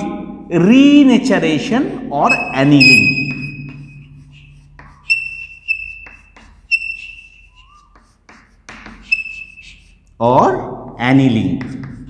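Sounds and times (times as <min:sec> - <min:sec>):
marker squeaking: 0:02.2 - 0:10.2, 0:11.6 - 0:12.0
marker tapping: 0:02.3 - 0:03.9, 0:04.6 - 0:10.2, 0:10.9 - 0:12.0.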